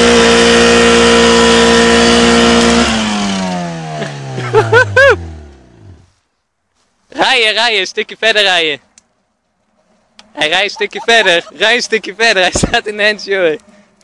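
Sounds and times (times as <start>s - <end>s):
car engine revving: 0.0s - 6.2s.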